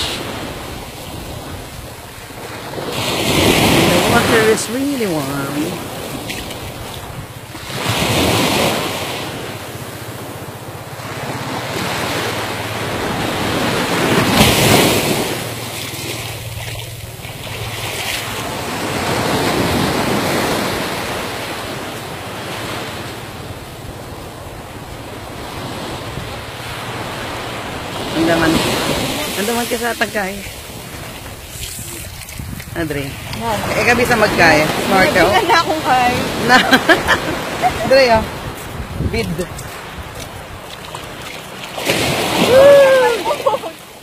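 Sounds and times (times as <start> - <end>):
surf washing onto beach: 0.0 - 44.0
wind on microphone: 30.6 - 41.2.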